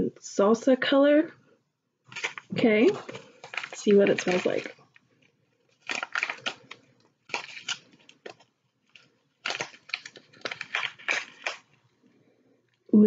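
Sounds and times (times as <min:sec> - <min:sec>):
plastic packet crinkling: 0:02.1 - 0:11.9.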